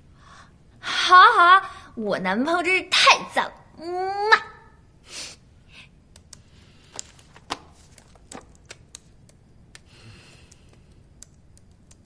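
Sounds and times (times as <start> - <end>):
laptop keyboard typing clicks: 8.0 - 12.0.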